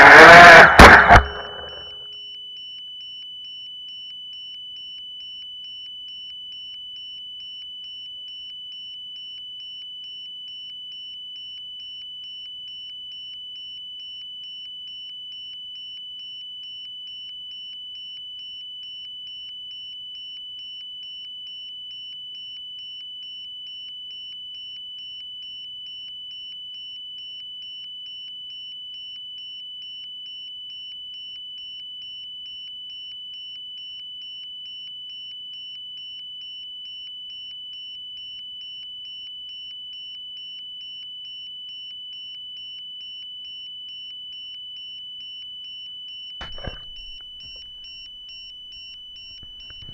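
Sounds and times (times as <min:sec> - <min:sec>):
pulsing electronic beep: 0:00.0 - 0:02.2, 0:46.4 - 0:49.9.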